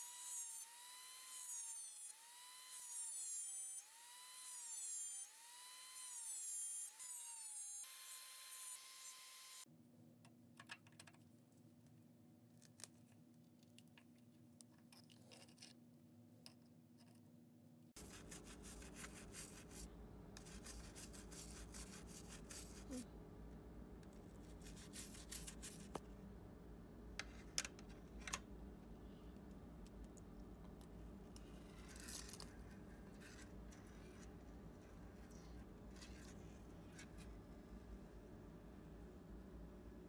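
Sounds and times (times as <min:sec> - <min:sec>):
rotary tool whine: 0:00.0 - 0:09.7.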